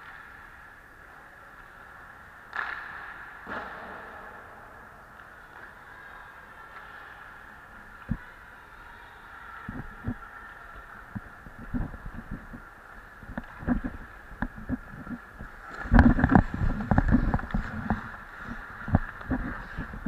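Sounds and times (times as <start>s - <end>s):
skates scraping on ice: 5.1s - 20.0s.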